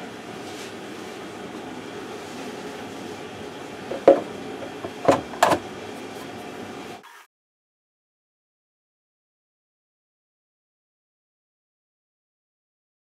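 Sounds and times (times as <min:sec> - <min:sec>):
steady background noise: 0:00.0 - 0:07.0.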